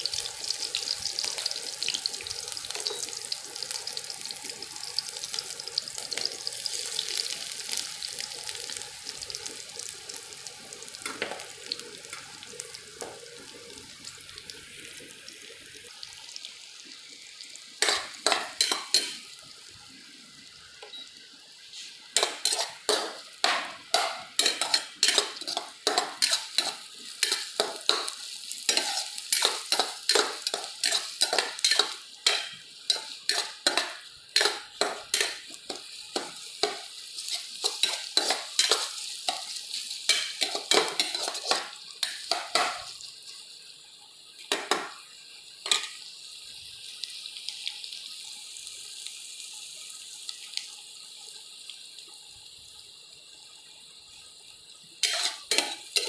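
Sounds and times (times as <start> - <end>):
onions sizzling in oil: 0.0 - 56.0
spatula scraping and tapping pan: 17.8 - 19.2, 21.8 - 42.9, 44.4 - 45.0, 45.6 - 46.0, 55.0 - 56.0.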